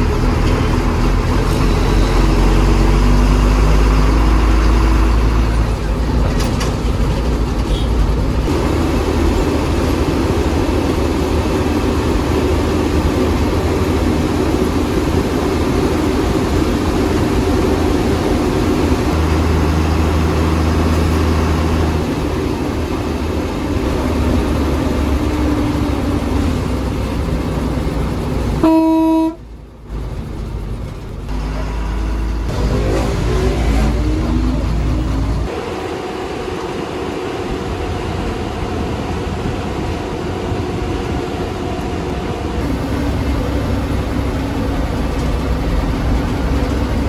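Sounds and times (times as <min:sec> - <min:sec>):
bus diesel engine running: 0:00.0 - 0:47.0
bus horn toot: 0:07.7 - 0:08.0, 0:28.6 - 0:29.5.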